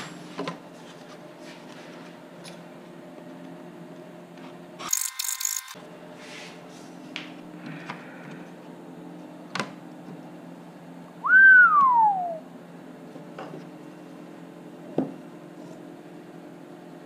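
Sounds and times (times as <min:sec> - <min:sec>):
loud sliding whistle: 0:11.2 - 0:12.4.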